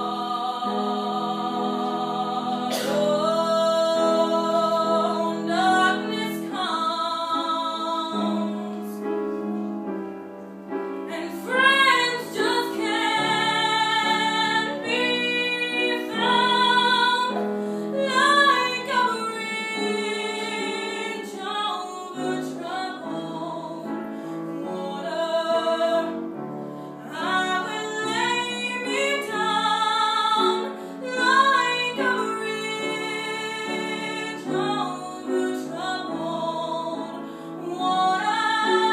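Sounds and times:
woman singing with vibrato: 0:00.0 - 0:09.0, 0:11.1 - 0:17.4, 0:18.0 - 0:23.9, 0:27.1 - 0:38.9
musical accompaniment: 0:00.0 - 0:38.9.

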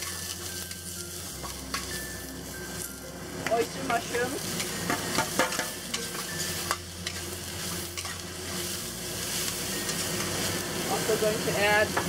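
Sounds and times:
mushrooms sizzling in a wok: 0:00.0 - 0:12.0
metal spatula clinking on pan: 0:04.6 - 0:07.2.

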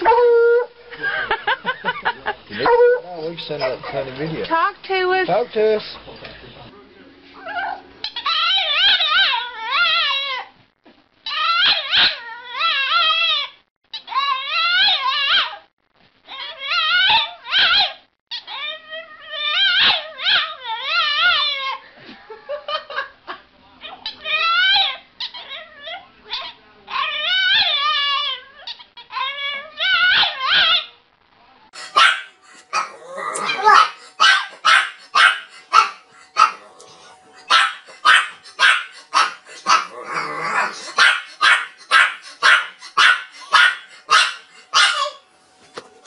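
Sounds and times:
dog howling: 0:02.6 - 0:03.2, 0:31.8 - 0:45.2.

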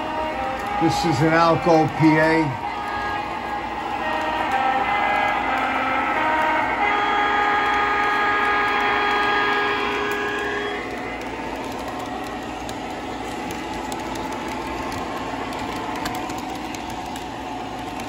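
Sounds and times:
multi-note horn tone: 0:00.0 - 0:12.0
model train rolling rumble: 0:06.0 - 0:18.0.

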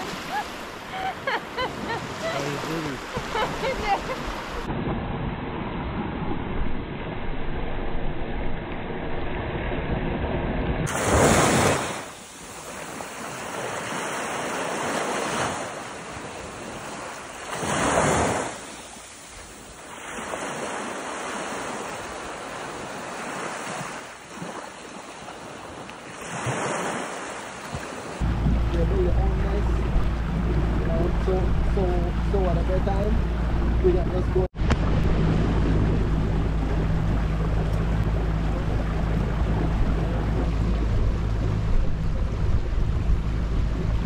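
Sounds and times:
waves washing on sand: 0:00.0 - 0:04.8, 0:10.8 - 0:33.0
wind buffeting microphone: 0:27.7 - 0:44.0.

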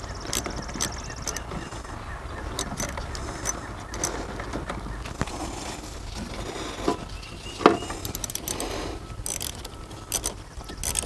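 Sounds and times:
metal clicks of battery terminal: 0:00.0 - 0:01.8, 0:02.4 - 0:04.2, 0:07.9 - 0:11.0.

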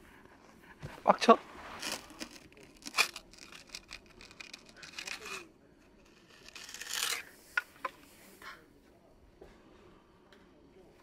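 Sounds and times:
snow crunching and scraping: 0:01.1 - 0:03.5.

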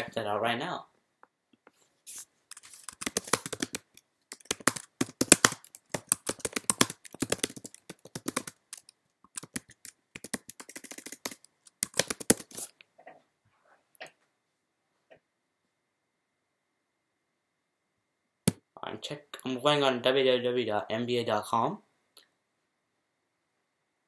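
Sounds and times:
computer keyboard typing: 0:02.5 - 0:12.7.

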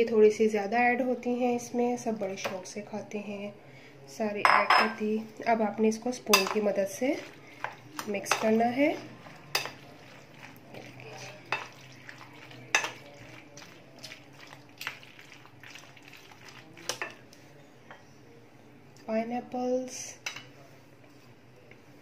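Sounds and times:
spoon stirring wet pasta: 0:05.3 - 0:18.0.

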